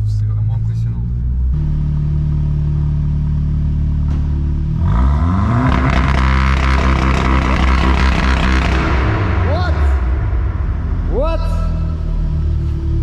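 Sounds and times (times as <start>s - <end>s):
car engine revving: 0.0s - 13.0s
exhaust pops crackling: 5.6s - 11.0s.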